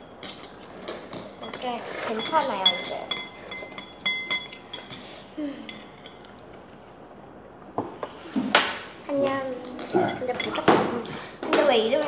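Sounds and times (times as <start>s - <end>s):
chopsticks clinking on ceramic bowl: 0.0s - 6.6s, 9.6s - 10.8s.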